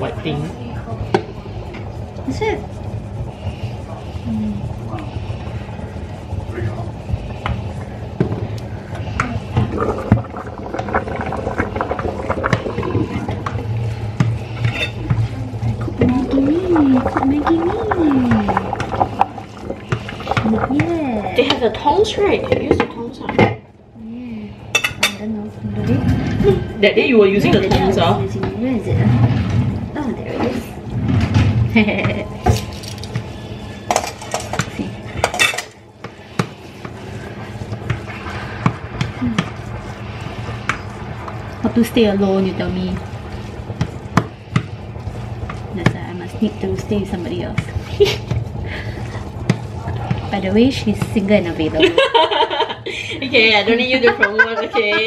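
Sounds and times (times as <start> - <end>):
pot of water steaming: 0.0 - 55.0
steady low hum: 0.0 - 55.0
utensils clinking against pots: 33.9 - 35.8.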